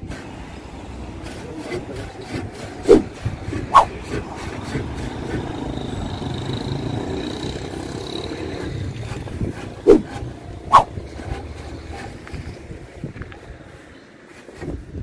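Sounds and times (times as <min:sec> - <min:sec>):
street traffic: 0:00.0 - 0:15.0
motorcycle riding past: 0:03.8 - 0:11.1.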